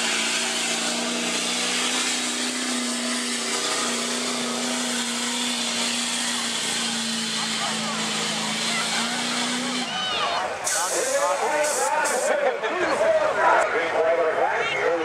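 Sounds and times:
diesel pickup engine droning: 0:00.0 - 0:15.0
rushing hiss: 0:10.6 - 0:12.3.

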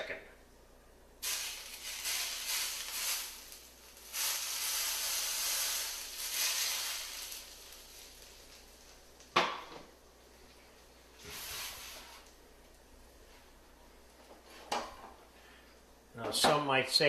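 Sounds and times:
butter sizzling and crackling: 0:01.2 - 0:09.7.

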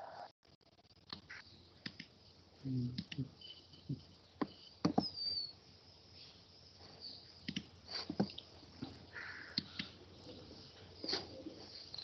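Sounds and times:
faint clicks: 0:01.0 - 0:02.1, 0:02.9 - 0:03.3, 0:07.4 - 0:08.5, 0:09.5 - 0:10.0.

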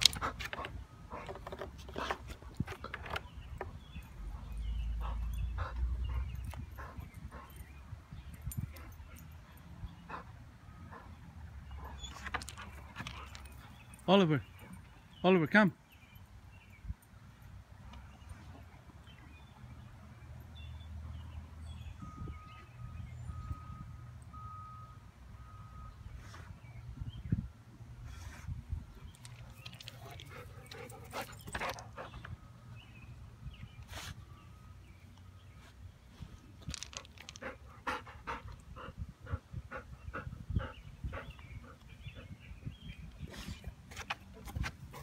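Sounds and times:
reversing alarm beeping: 0:22.0 - 0:26.1
dogs barking and yipping: 0:29.7 - 0:32.3.

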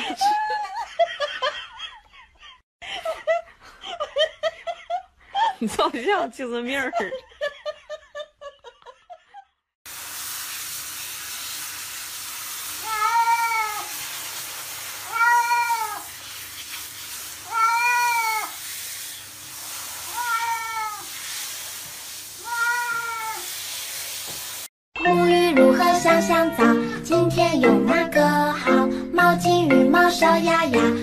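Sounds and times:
shower water spraying: 0:09.9 - 0:24.7
cat meowing: 0:12.8 - 0:13.9, 0:15.0 - 0:16.1, 0:17.4 - 0:18.6, 0:20.1 - 0:21.1, 0:22.4 - 0:23.5.

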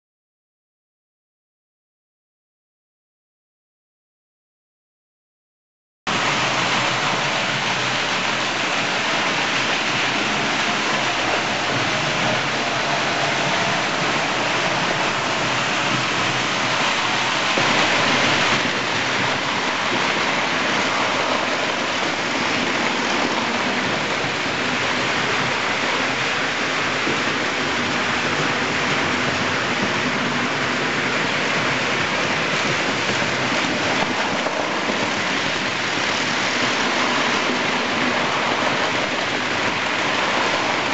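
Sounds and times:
model trains whirring on rails: 0:06.1 - 0:40.9.

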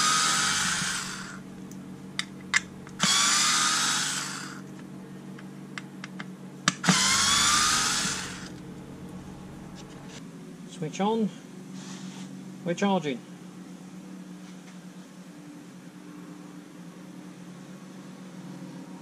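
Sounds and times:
cordless screwdriver whining: 0:00.0 - 0:01.4, 0:02.6 - 0:04.7, 0:06.8 - 0:08.6.

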